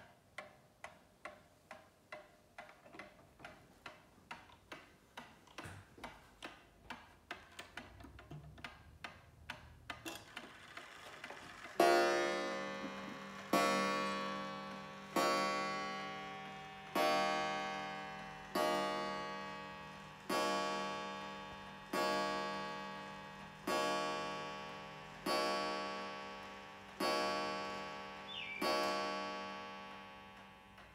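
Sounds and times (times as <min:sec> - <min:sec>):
clock striking a gong: 0:11.8 - 0:30.5.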